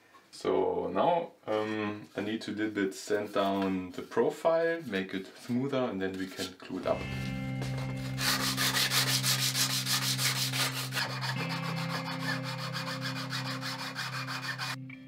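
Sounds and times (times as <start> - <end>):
wood sanding by hand: 7.7 - 14.8.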